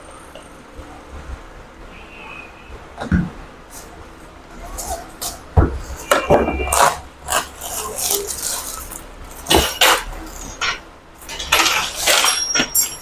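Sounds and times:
plastic packaging rustling: 4.7s - 12.7s.

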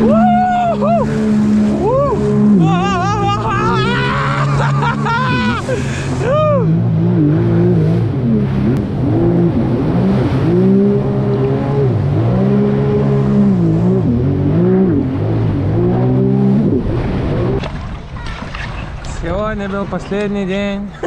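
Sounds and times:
jet ski engine running hard: 0.0s - 19.0s
water rushing against hull: 0.0s - 21.0s.

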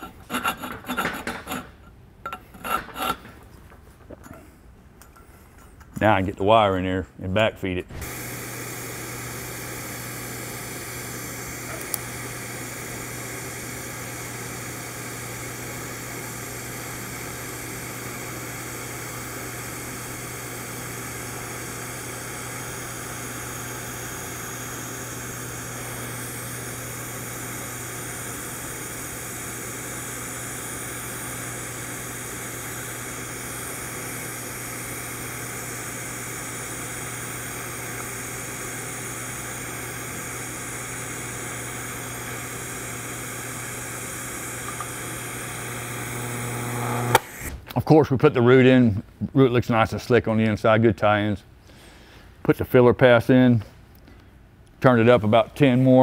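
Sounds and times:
welding arc hissing: 7.9s - 47.6s.

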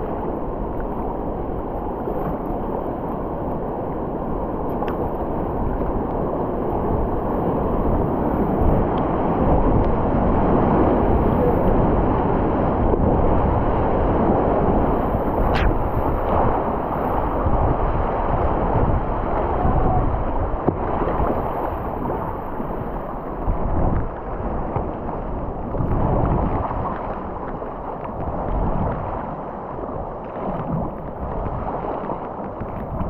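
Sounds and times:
river water splashing against kayak: 0.0s - 33.0s
wind rumble on microphone: 0.0s - 33.0s.

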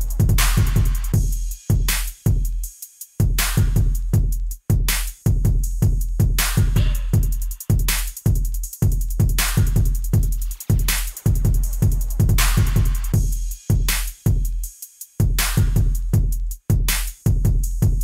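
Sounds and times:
drum-machine beat with heavy bass: 0.0s - 18.0s.

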